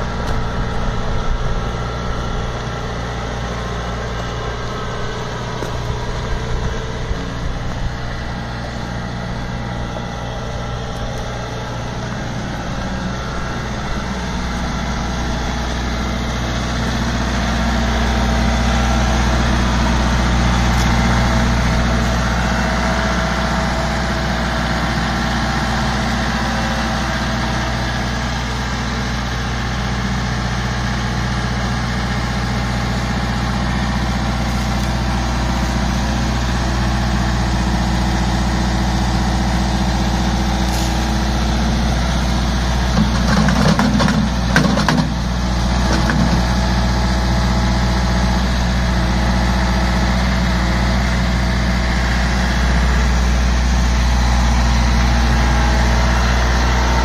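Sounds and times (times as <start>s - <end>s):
tractor diesel engine running: 0.0s - 57.0s
rattling clatter: 42.9s - 45.2s.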